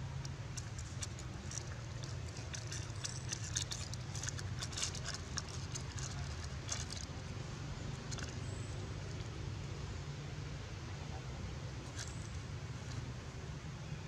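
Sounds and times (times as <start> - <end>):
steady low hum: 0.0 - 14.0
dry leaf rustling: 0.1 - 9.2.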